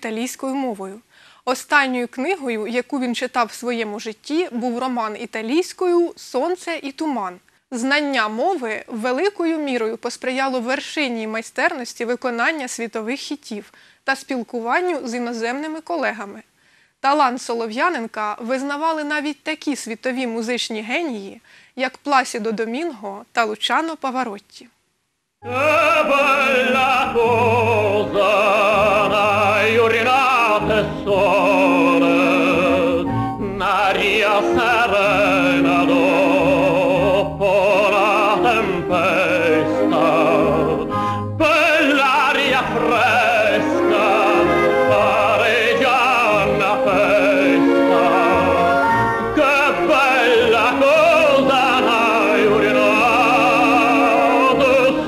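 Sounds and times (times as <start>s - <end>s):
instrumental accompaniment: 25.4s - 55.0s
male tenor singing opera: 25.4s - 55.0s.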